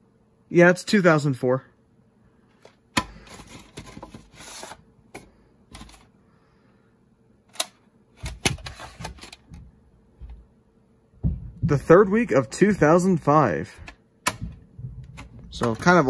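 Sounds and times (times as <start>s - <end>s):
plastic cassette clicks: 7.5s - 9.4s
knocks: 11.2s - 11.9s.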